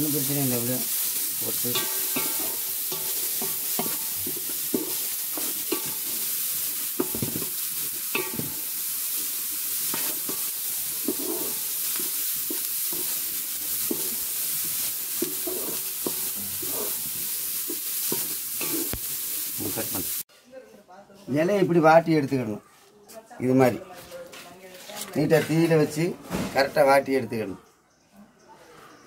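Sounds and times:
onions sizzling in oil: 0:00.0 - 0:20.3
wooden spatula scraping a pan: 0:00.2 - 0:19.0.

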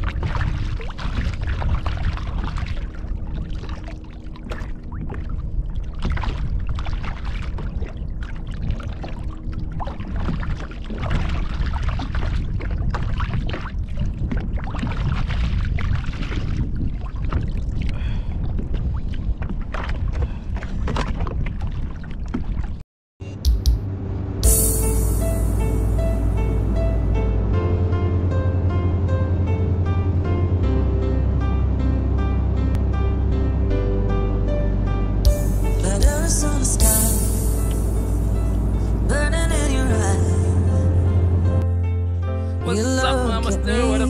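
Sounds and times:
water lapping against kayak hull: 0:00.0 - 0:22.8
wind rumbling on microphone: 0:00.0 - 0:22.8.

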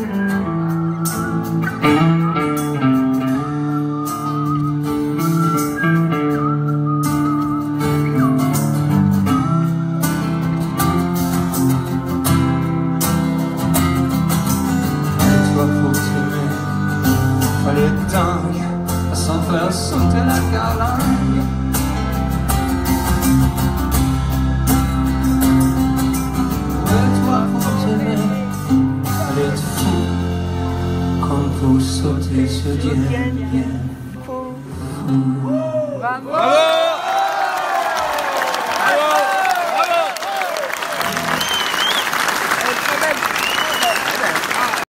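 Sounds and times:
acoustic guitars strumming: 0:00.0 - 0:35.5
electric guitar: 0:00.0 - 0:35.6.

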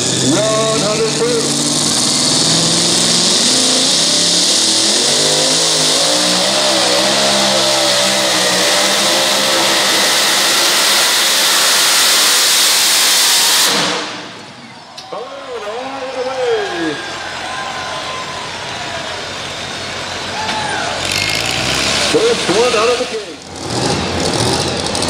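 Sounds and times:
tires spinning: 0:00.0 - 0:25.0
truck engine running flat out: 0:00.0 - 0:25.0.

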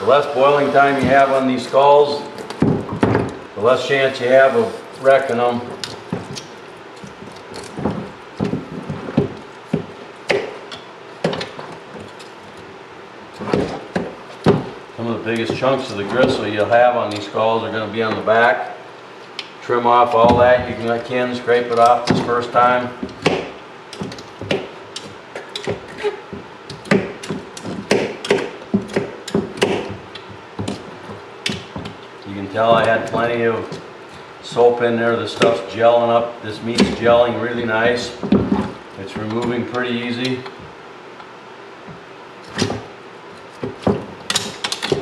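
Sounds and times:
hand tool scraping bone: 0:00.0 - 0:02.5.

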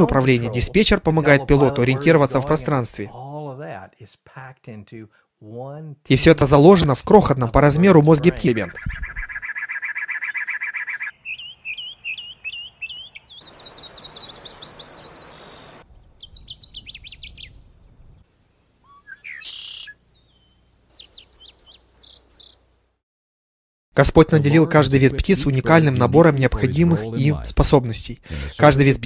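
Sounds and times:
birds singing and chirping: 0:08.0 - 0:18.2, 0:18.9 - 0:22.6.

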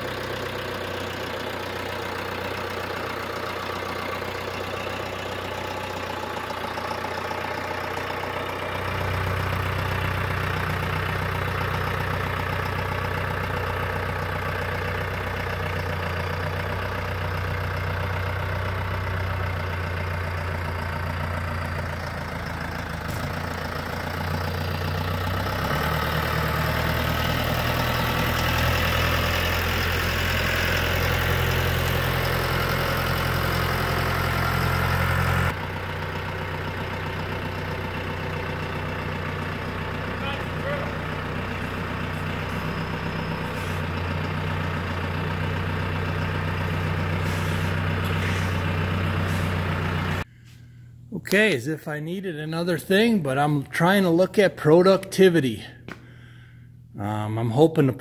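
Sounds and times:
tractor diesel engine running: 0:00.0 - 0:56.9.

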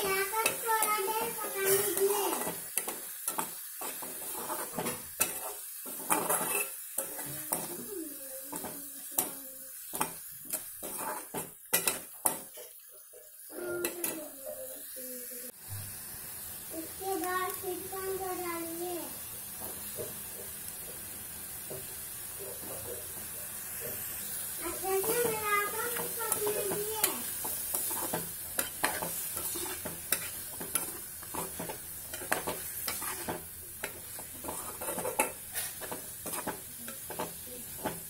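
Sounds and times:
metal spoon scraping a pan: 0:00.0 - 0:07.9, 0:08.5 - 0:13.1, 0:23.7 - 0:38.0.

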